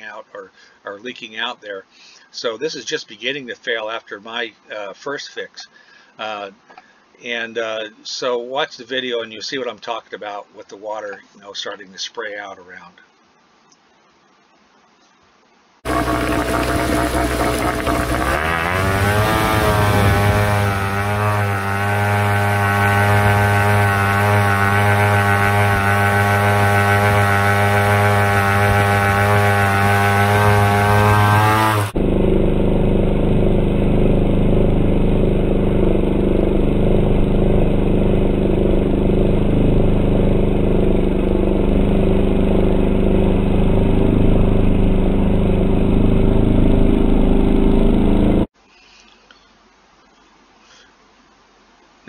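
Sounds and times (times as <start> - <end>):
outboard motor running: 15.8 - 48.5.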